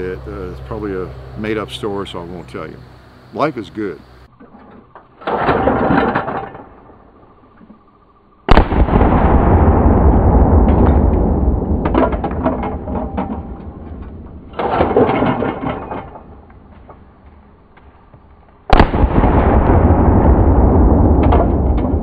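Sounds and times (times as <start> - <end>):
shotgun shot with rolling echo: 8.5 - 13.8, 18.7 - 22.0.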